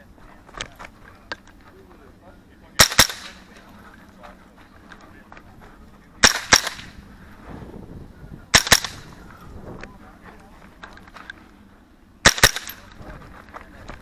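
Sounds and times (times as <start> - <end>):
rifle shots in pairs: 2.8 - 3.6, 6.2 - 7.1, 8.5 - 9.2, 12.2 - 13.0.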